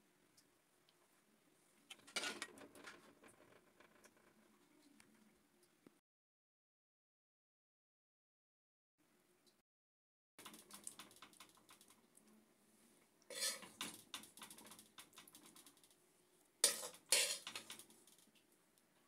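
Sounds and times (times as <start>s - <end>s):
dishes clattering: 1.9s - 3.3s, 13.3s - 14.1s, 16.6s - 17.9s
utensil clicking and scraping dishes: 1.9s - 4.2s, 13.3s - 15.8s, 16.6s - 18.2s.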